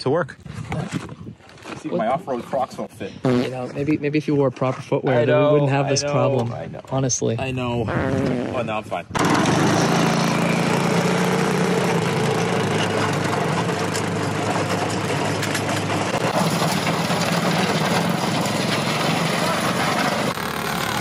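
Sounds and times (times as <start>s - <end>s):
small engine running: 9.2s - 21.0s.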